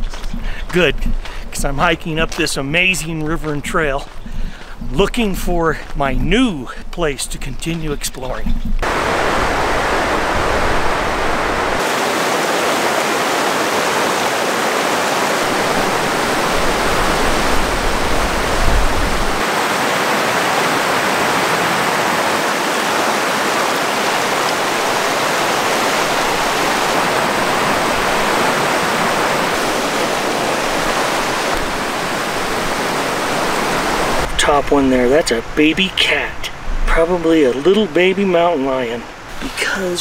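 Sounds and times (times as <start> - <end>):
river water rushing: 8.8 - 40.0.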